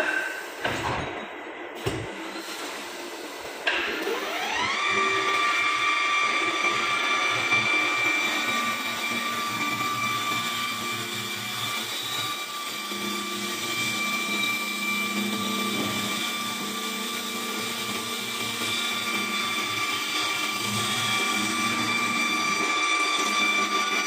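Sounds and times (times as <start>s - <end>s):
wood lathe running: 2.8s - 24.0s.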